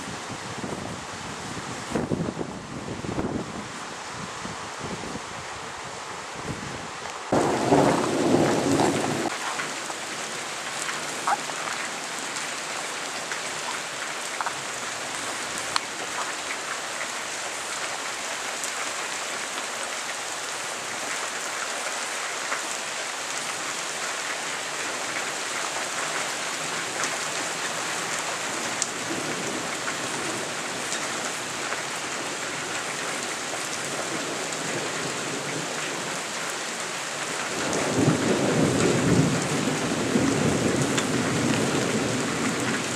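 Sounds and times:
steady rain falling: 0.0s - 42.9s
thunder rumble: 7.3s - 9.9s.

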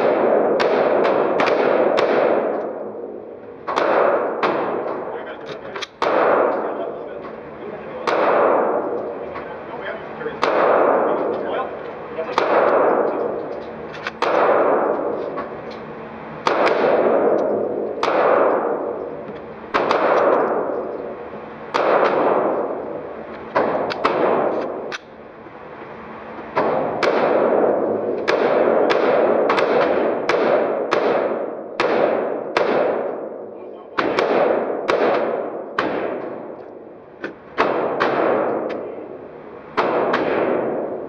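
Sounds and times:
gunshots echoing indoors: 0.0s - 7.2s, 7.9s - 9.4s, 10.2s - 13.5s, 14.1s - 15.6s, 16.4s - 25.0s, 26.5s - 36.9s, 37.6s - 41.0s.

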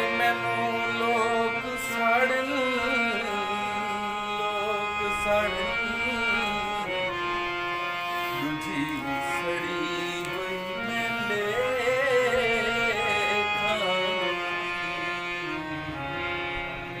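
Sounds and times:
person singing ornamented line: 0.0s - 7.0s
harmonium playing held chords: 0.0s - 17.0s.

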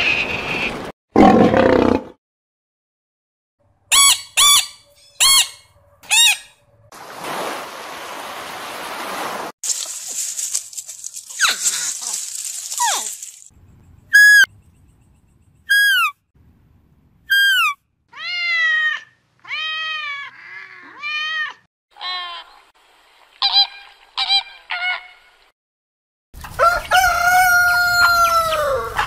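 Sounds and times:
longer nasal calls: 14.1s - 14.5s
short high falling calls: 14.1s - 14.5s, 15.7s - 16.2s, 17.3s - 17.8s.

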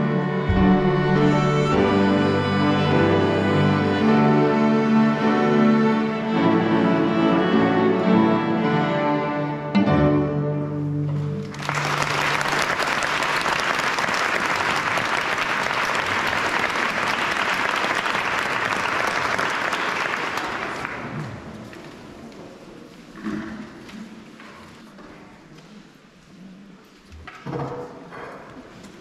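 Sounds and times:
string ensemble holding a chord: 0.0s - 11.5s
audience applause: 11.4s - 21.4s.

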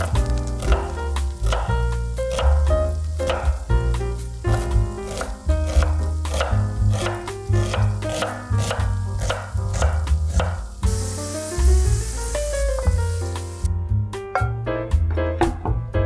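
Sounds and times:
food sizzling while frying: 0.0s - 13.8s
background music with bass and piano: 0.0s - 16.0s
knife chopping on cutting board: 4.5s - 10.6s.

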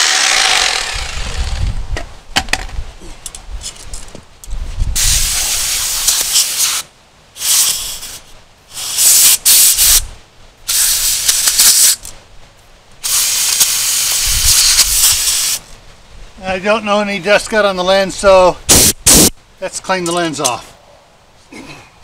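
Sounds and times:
compressed air blasts: 5.0s - 10.1s, 10.7s - 12.1s, 13.0s - 15.7s, 18.7s - 19.4s.

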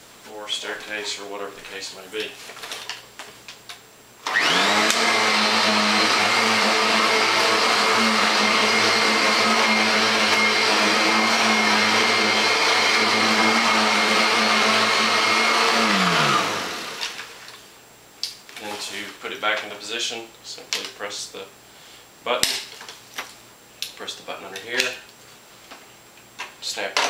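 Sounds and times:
vacuum cleaner motor whining: 4.2s - 17.5s.

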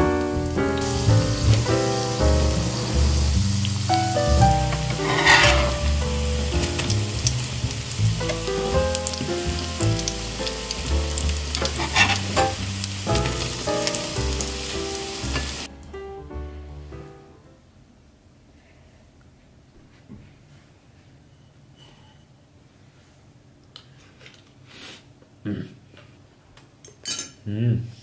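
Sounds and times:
background music: 0.0s - 17.6s
pancakes sizzling in hot oil: 0.8s - 15.7s.

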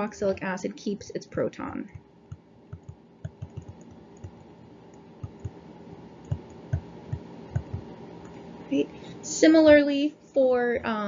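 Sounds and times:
faint steady hum: 0.0s - 11.0s
stylus tapping on a tablet: 2.3s - 4.4s, 5.2s - 5.6s, 6.3s - 7.9s.

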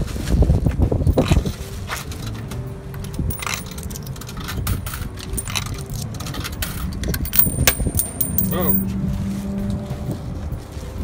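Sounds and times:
coins clinking into slot: 3.0s - 8.9s
coins jingling in hand: 3.3s - 6.0s, 7.2s - 8.9s.

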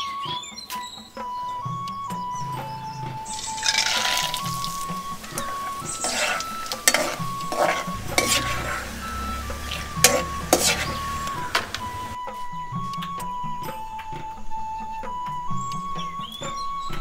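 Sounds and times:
peanuts sizzling in hot oil: 3.2s - 12.2s
metal spoon scraping a wok: 3.3s - 12.2s.

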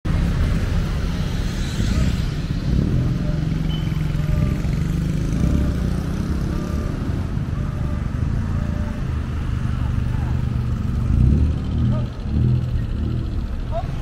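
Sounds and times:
car engines running: 0.1s - 14.0s
motorcycle engine running: 0.1s - 14.0s.

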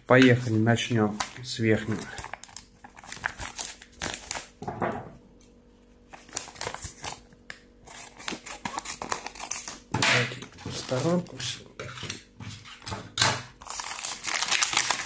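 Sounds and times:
paper envelopes rustling: 0.1s - 4.6s, 6.0s - 9.8s, 10.4s - 11.5s, 13.6s - 15.0s.

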